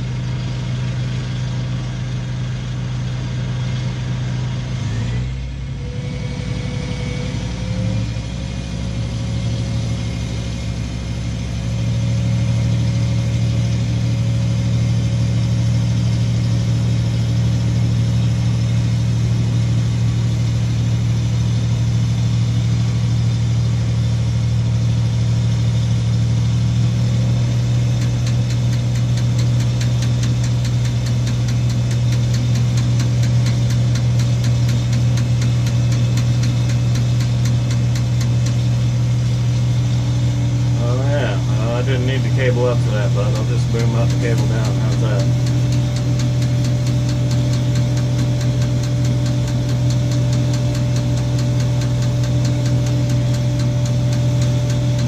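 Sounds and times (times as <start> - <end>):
diesel engine running: 0.0 - 55.0
rapid light ticking: 27.9 - 38.6, 42.4 - 55.0.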